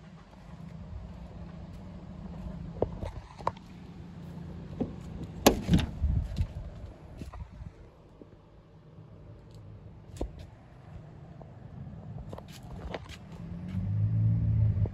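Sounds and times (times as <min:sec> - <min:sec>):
car door clunk and knocks: 0:04.8 - 0:06.0
car door latch clicks: 0:05.4 - 0:06.0.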